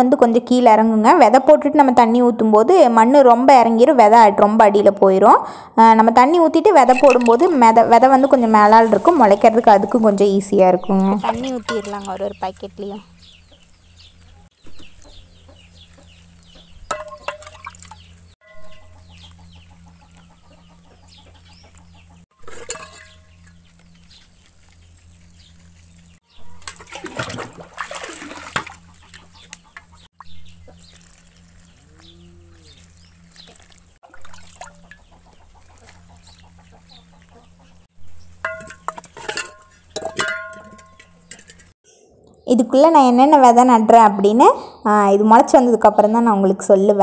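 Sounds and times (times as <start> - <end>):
low steady hum: 6.5 - 44.4
small birds chirping: 6.9 - 27.0, 28.6 - 38.5
hens clucking: 19.0 - 22.2, 28.6 - 30.9, 34.6 - 37.9.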